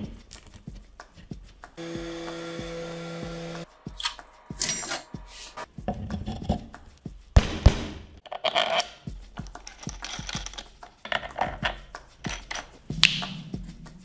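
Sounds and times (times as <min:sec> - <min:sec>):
plates and rods clicking and scraping: 0:08.2 - 0:12.8.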